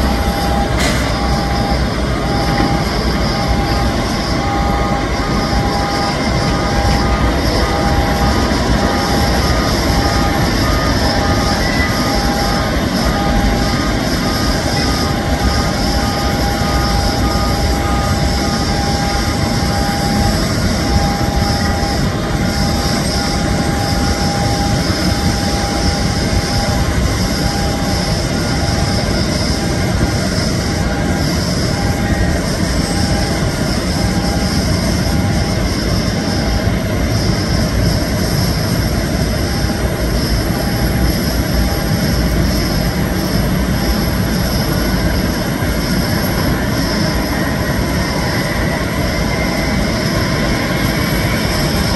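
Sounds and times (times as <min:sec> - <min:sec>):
jet engines rumbling with whine: 0:00.0 - 0:51.9.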